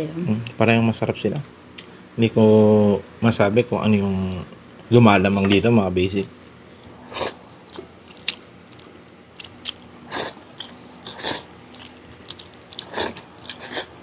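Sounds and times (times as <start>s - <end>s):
person chewing food: 6.3s - 14.0s.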